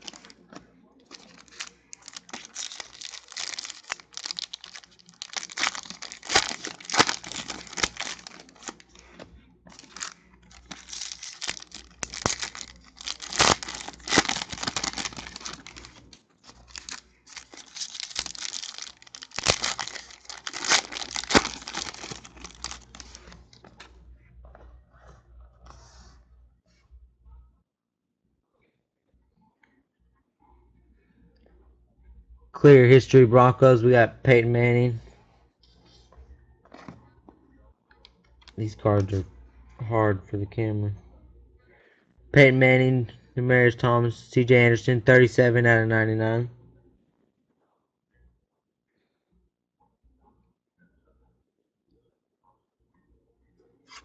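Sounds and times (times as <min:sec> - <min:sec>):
foil wrappers tearing and crinkling: 0:00.0 - 0:00.4, 0:01.1 - 0:09.1, 0:09.7 - 0:23.4.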